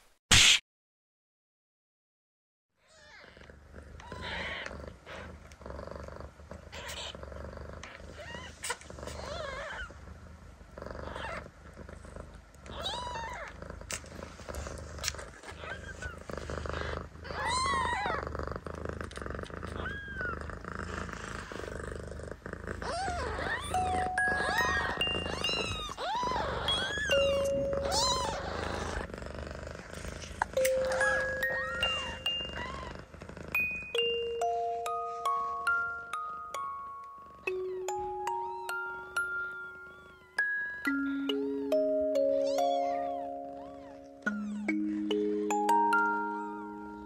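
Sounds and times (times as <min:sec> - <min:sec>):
cat purring: 0:03.0 - 0:47.0
kittens mewing: 0:04.0 - 0:05.3, 0:12.7 - 0:18.4, 0:19.6 - 0:20.6, 0:22.7 - 0:29.1, 0:30.1 - 0:34.2, 0:37.4 - 0:47.0.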